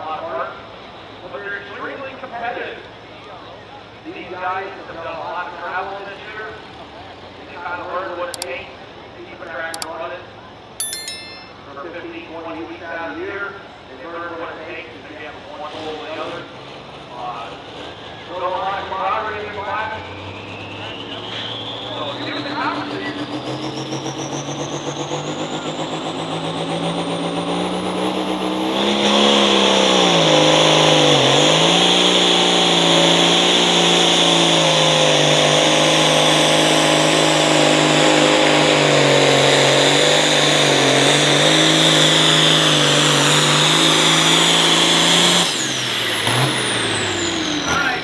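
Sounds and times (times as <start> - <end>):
tractor engine at full throttle: 15.6 - 48.0.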